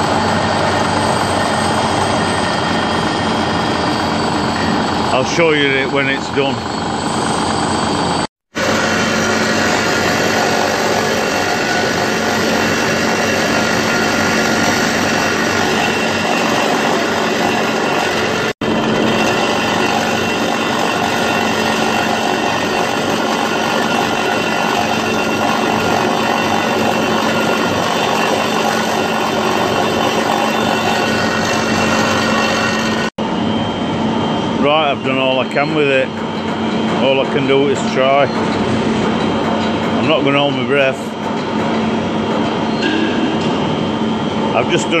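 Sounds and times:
milling cutter cutting steel: 8.6 - 33.2.

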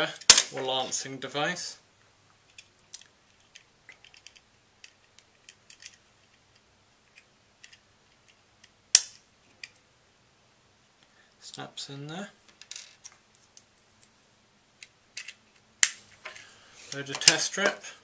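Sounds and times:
sharp plastic snap: 9.0 - 9.2.

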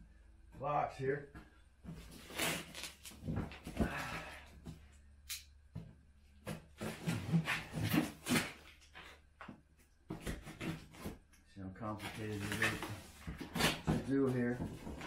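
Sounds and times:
cardboard box scraping and knocking: 12.0 - 15.0.

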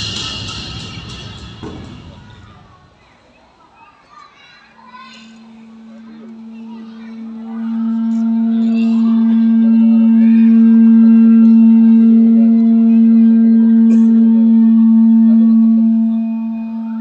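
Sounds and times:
held musical note: 5.1 - 17.0.

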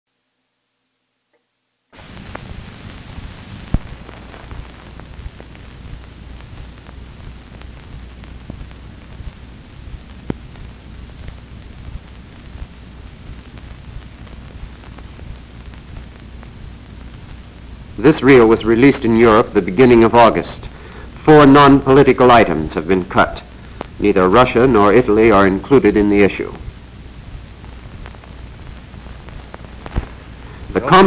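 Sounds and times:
film hiss: 0.1 - 31.0
low hum: 2.0 - 31.0
film clicks and pops: 3.6 - 17.4, 27.5 - 30.4.

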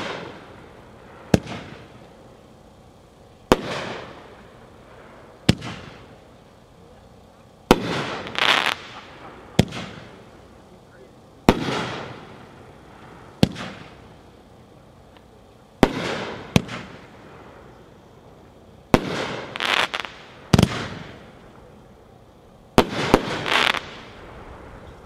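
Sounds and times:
firework bangs: 0.0 - 2.2, 3.4 - 6.4, 7.6 - 10.6, 11.4 - 14.7, 15.8 - 17.8, 18.9 - 21.4, 22.7 - 25.0
firework hiss: 0.0 - 25.0.

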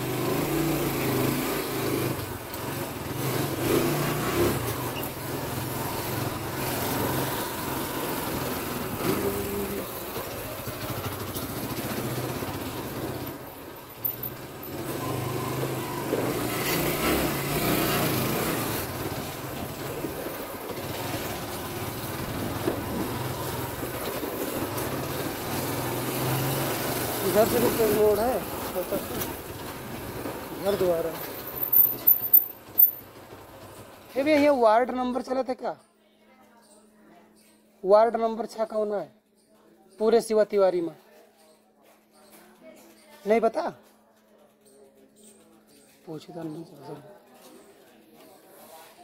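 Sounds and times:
small motorbike engine: 0.0 - 34.4
wind and road noise: 14.0 - 33.0.

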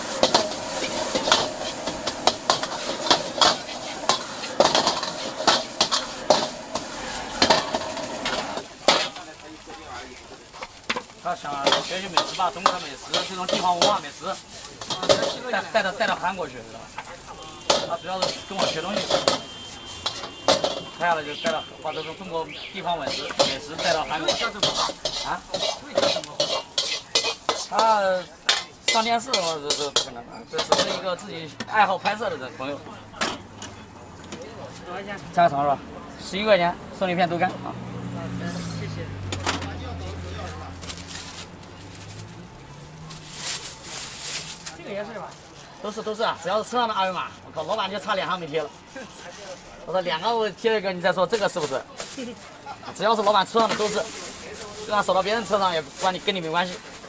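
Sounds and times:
metal utensil scraping cooking pan: 0.0 - 32.4, 53.2 - 57.0
food sizzling: 0.0 - 35.4, 37.6 - 57.0.

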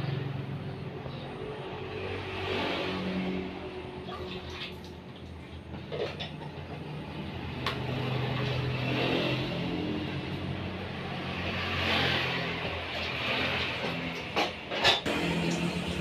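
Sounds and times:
low motor hum: 15.1 - 16.0.

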